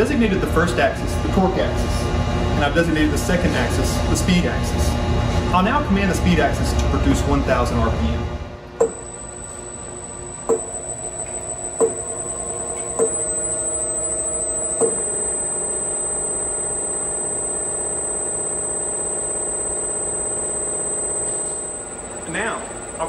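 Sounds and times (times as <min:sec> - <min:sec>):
servo motor hum and whine: 0:08.8 - 0:23.0.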